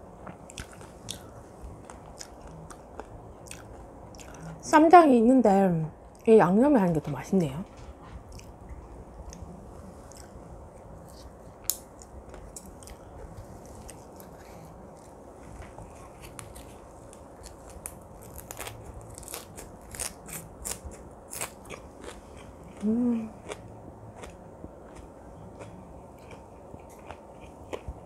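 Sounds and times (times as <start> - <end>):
wet chewing with crisp crunches: 0.2 - 4.5, 9.2 - 10.4, 11.0 - 28.0
person humming: 22.8 - 23.4.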